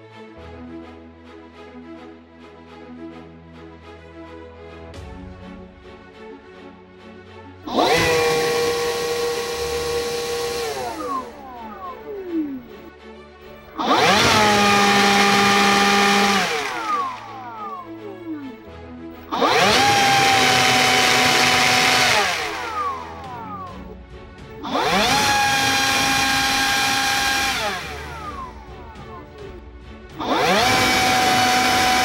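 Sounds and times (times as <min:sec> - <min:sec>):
cordless blower motor whining: 0:07.6 - 0:12.9, 0:13.5 - 0:18.6, 0:19.2 - 0:23.9, 0:24.5 - 0:32.0.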